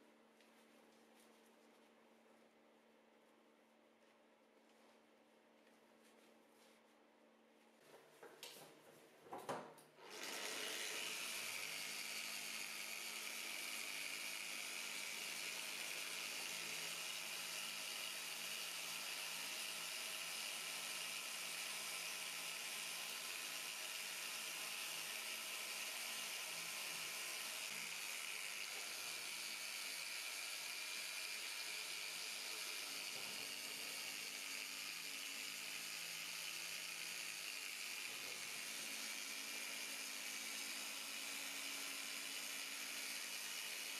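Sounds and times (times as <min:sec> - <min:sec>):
orbital sander whirring: 0:10.0 - 0:43.9.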